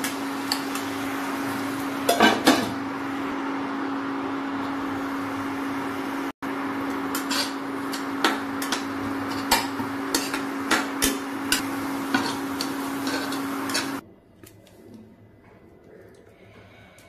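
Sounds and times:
induction cooktop hum and hiss: 0:00.0 - 0:17.0
metal spatula scraping a pan: 0:07.1 - 0:14.0.

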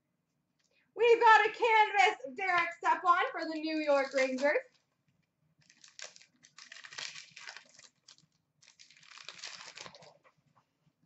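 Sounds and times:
card pack wrapper crinkling: 0:05.6 - 0:10.2.

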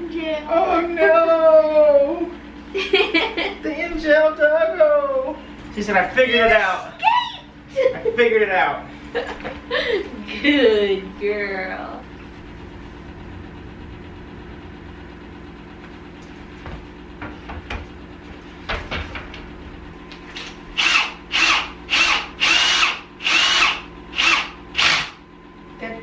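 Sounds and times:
low steady hum: 0:00.0 - 0:26.0
cordless drill whine: 0:20.3 - 0:25.2.

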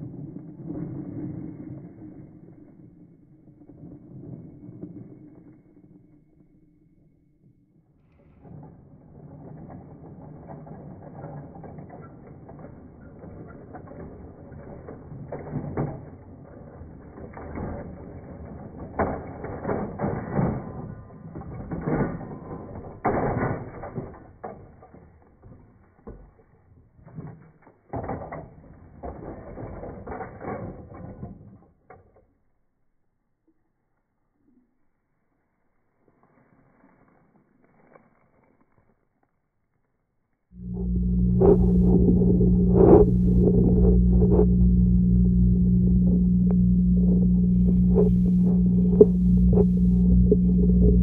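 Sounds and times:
toy train cars knocking and clattering: 0:08.2 - 0:32.6
toy train mechanical rattle: 0:08.3 - 0:25.4.

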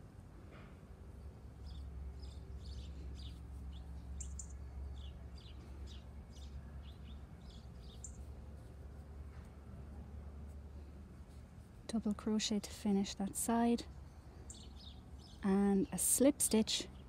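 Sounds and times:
small birds chirping: 0:01.1 - 0:09.5, 0:13.9 - 0:17.0.

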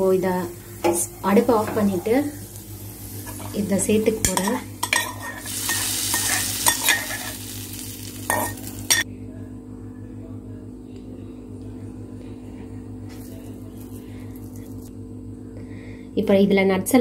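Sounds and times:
hot oil sizzling: 0:00.0 - 0:09.0
faint steady hum: 0:00.0 - 0:17.0
steel spoon scraping pan: 0:04.2 - 0:07.4.

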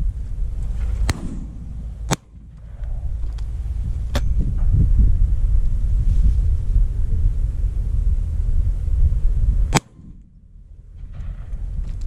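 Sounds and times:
wind rumbling on microphone: 0:00.0 - 0:12.0
shotgun shots: 0:01.0 - 0:02.9, 0:09.7 - 0:10.3.

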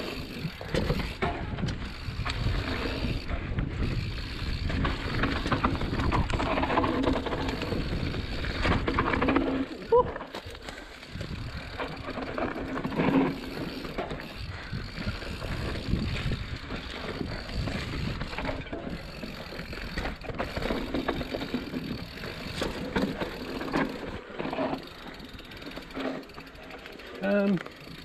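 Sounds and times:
bike rattling and knocking: 0:00.0 - 0:28.0
bike tyres rumbling on dirt: 0:00.0 - 0:28.0.

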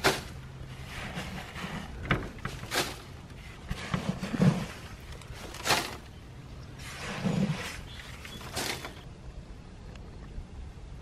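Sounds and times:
wood shavings rustling and scraping: 0:00.0 - 0:09.1.

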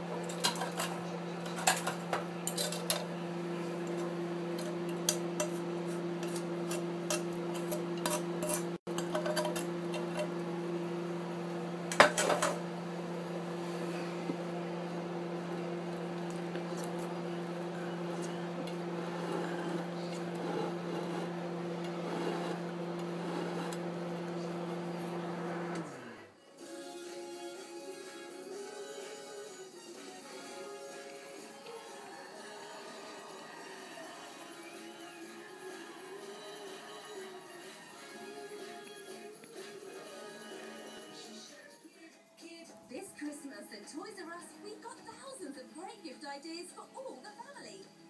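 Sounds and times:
plate and cutlery clinking: 0:00.2 - 0:03.1, 0:11.9 - 0:12.6
electric motor humming: 0:03.0 - 0:26.3.

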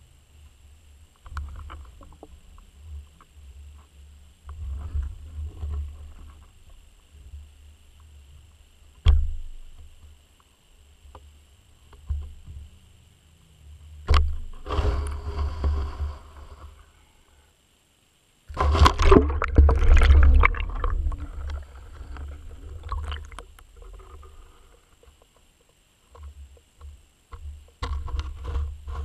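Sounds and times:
underwater rumble and swishing: 0:14.0 - 0:16.8, 0:18.5 - 0:25.1.

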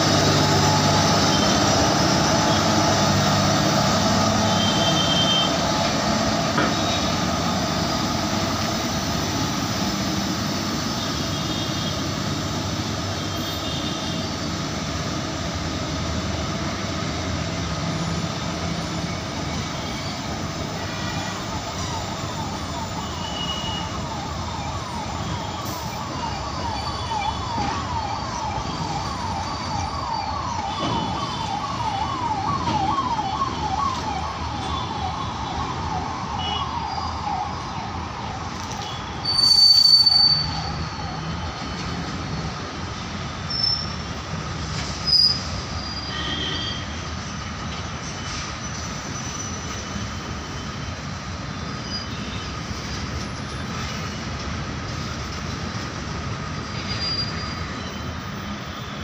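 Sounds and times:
train wheels rumbling on rail: 0:00.0 - 0:22.7, 0:38.4 - 0:45.9, 0:46.9 - 0:58.6
high squeal: 0:39.2 - 0:41.8, 0:45.0 - 0:46.8, 0:56.9 - 0:58.0.

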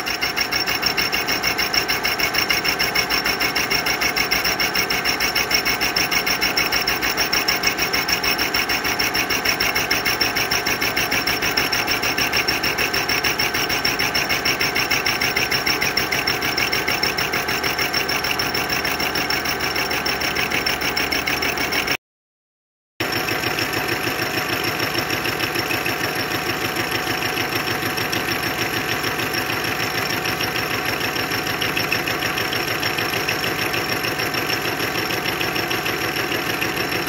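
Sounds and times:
hole saw cutting metal pipe: 0:00.0 - 0:22.0.

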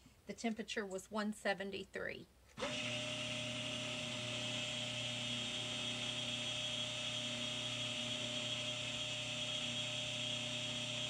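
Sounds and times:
stick blender humming: 0:02.6 - 0:11.0.

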